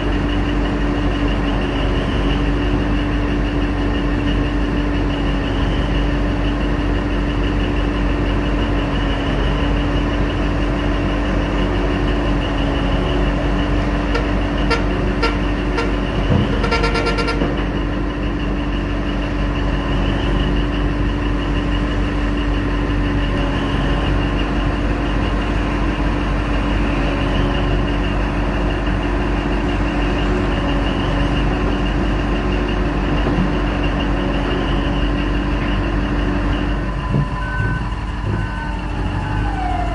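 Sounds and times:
heavy diesel engines running: 0.0 - 39.9
vehicle horn toots and blast: 14.1 - 17.6.

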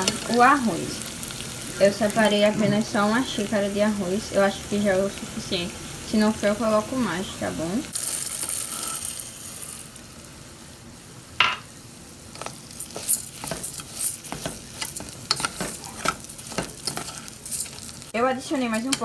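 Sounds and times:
vegetables sizzling in oil: 0.0 - 19.0
rice pouring into a pot: 7.9 - 10.0
metal spoon scraping a pot: 12.4 - 17.9.

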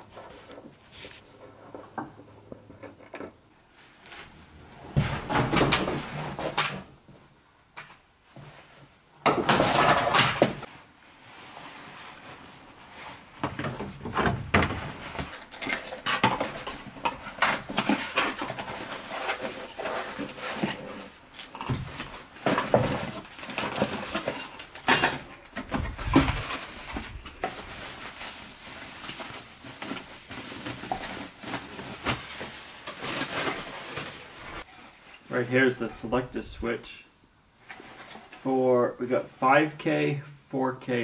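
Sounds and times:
packaging rustling and crinkling: 11.7 - 34.7
light fixture parts clattering: 22.4 - 26.7.

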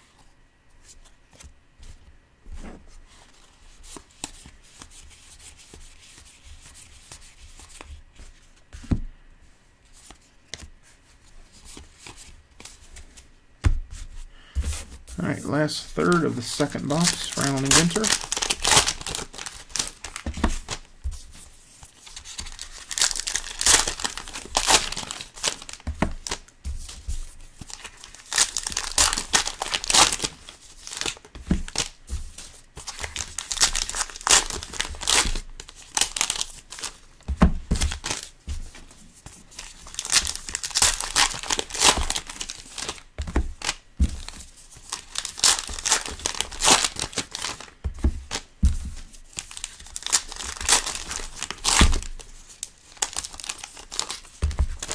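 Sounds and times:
wrappers torn open and crinkled: 16.1 - 20.8, 22.1 - 26.4, 27.7 - 32.0, 32.8 - 37.0, 39.6 - 43.0, 44.8 - 47.7, 49.4 - 54.9.

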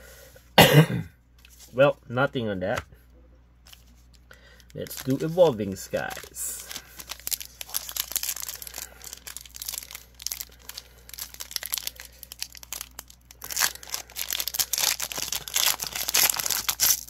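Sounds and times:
foil wrapper tearing and crinkling: 4.7 - 17.0.

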